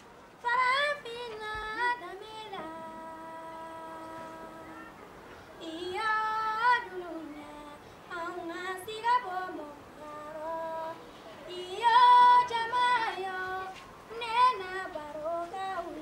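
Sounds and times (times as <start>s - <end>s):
woman singing alone: 0.4s - 5.0s, 5.6s - 16.0s.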